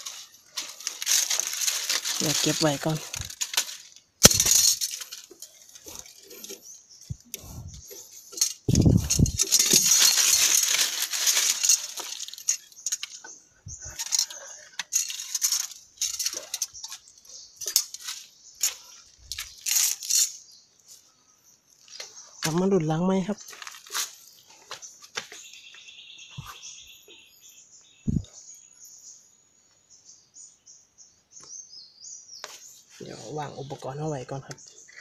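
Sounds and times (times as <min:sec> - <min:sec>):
wooden trap clicks and knocks: 0:00.0 - 0:06.6, 0:08.3 - 0:17.0
dry leaves and twigs crackling: 0:00.0 - 0:29.2.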